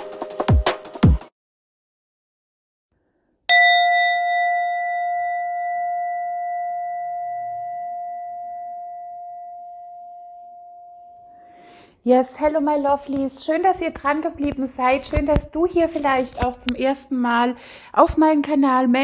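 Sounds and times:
singing bowl ringing: 0:03.5 - 0:11.7.

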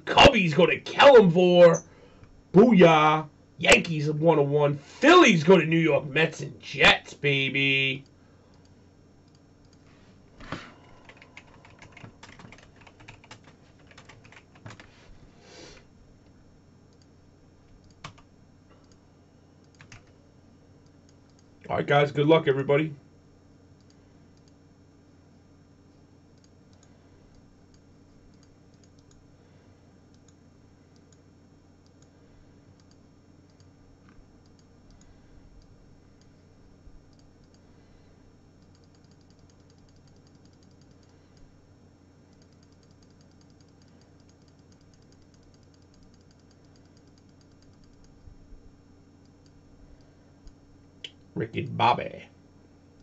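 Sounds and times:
faint electrical hum: 0:00.0 - 0:53.0
soft clicks: 0:08.0 - 0:09.8, 0:16.2 - 0:17.1, 0:17.7 - 0:19.0, 0:20.8 - 0:21.5, 0:23.8 - 0:24.6, 0:26.3 - 0:29.2, 0:30.1 - 0:31.2, 0:31.8 - 0:32.1, 0:32.7 - 0:36.5, 0:37.1 - 0:37.6, 0:38.6 - 0:41.5, 0:42.3 - 0:48.2.

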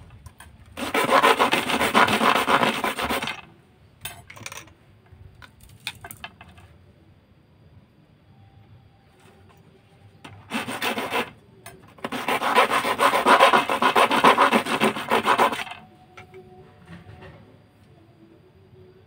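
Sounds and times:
hacksaw sawing rod: 0:00.8 - 0:03.4, 0:10.4 - 0:11.4, 0:12.0 - 0:15.8.

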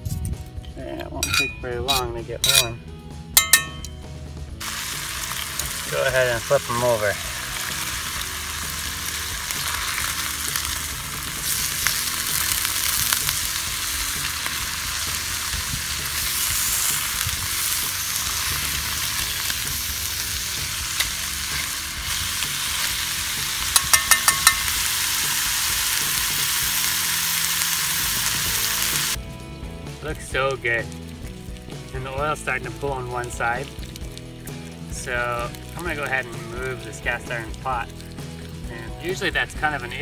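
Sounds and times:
metal tongs clicking: 0:01.2 - 0:02.8, 0:03.4 - 0:04.0, 0:23.7 - 0:24.8
chicken sizzling in oil: 0:03.4 - 0:40.0.

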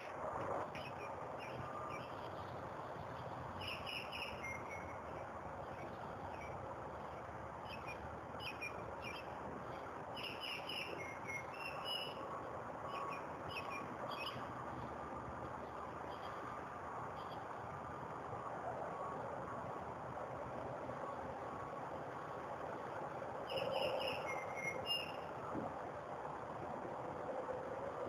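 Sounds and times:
steady background hiss: 0:00.0 - 0:28.0
songbird chirping: 0:00.6 - 0:14.8, 0:23.4 - 0:25.3.

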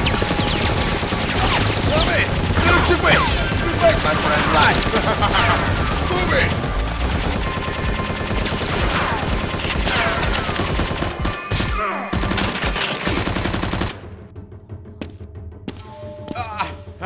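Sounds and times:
machine-gun fire: 0:00.0 - 0:14.1.

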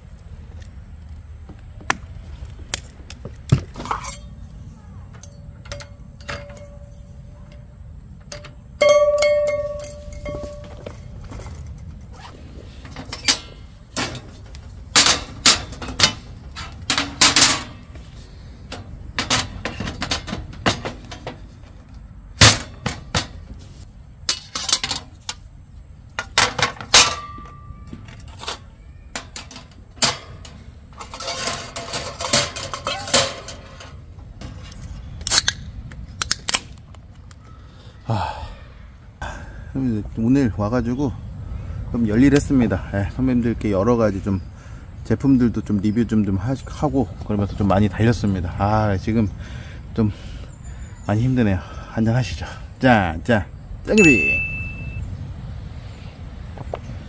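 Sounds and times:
metal table panels clattering: 0:08.2 - 0:10.9, 0:12.8 - 0:18.0, 0:18.6 - 0:21.7, 0:22.4 - 0:23.5, 0:26.2 - 0:34.6.

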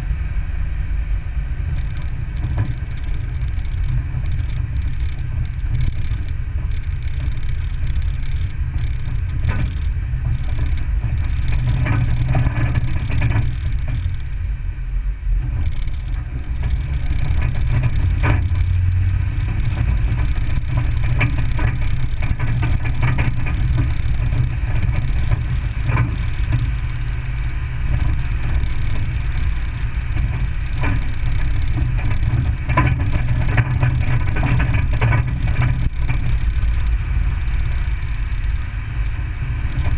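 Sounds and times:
vehicle engine and road rumble: 0:00.0 - 0:39.9
knocks and rattles over bumps: 0:01.7 - 0:14.4, 0:15.4 - 0:39.9.

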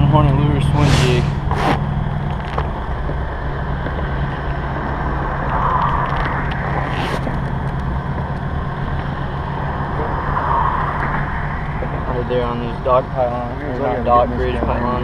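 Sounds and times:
low motor hum: 0:00.0 - 0:15.0
wash of noise: 0:00.7 - 0:01.5.

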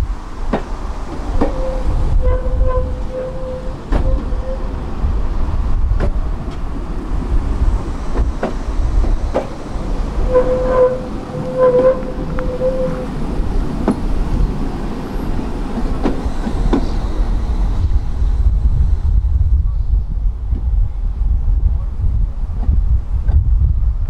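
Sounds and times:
tram rumbling on track: 0:00.0 - 0:24.0
steady whining tone: 0:01.1 - 0:18.5
wheels knocking on rails: 0:06.0 - 0:14.6.

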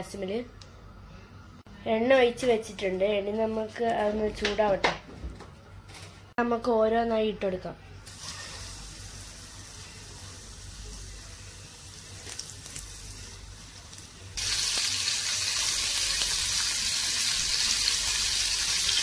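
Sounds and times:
oil sizzling while deep-frying: 0:08.0 - 0:19.0.

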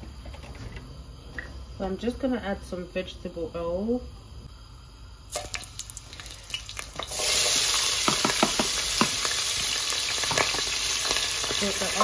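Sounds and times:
oil sizzling in a frying pan: 0:05.3 - 0:12.0.

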